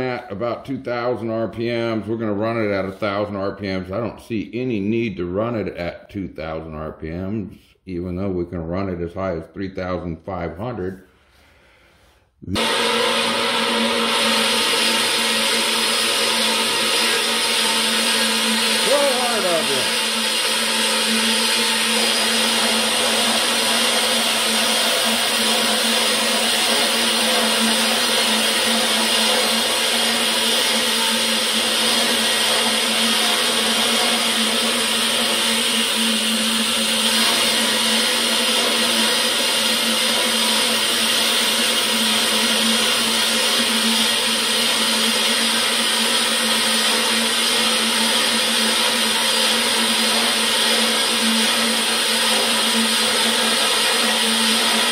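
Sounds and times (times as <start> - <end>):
band saw cutting wood: 12.5 - 54.9.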